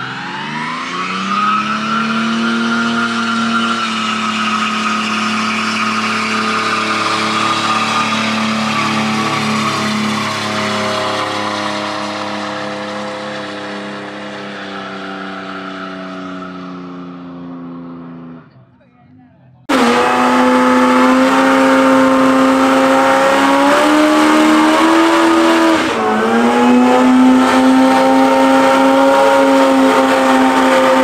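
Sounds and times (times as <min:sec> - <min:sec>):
car engine at high revs: 0:00.0 - 0:18.7, 0:19.6 - 0:31.0
tyres squealing: 0:01.1 - 0:12.8.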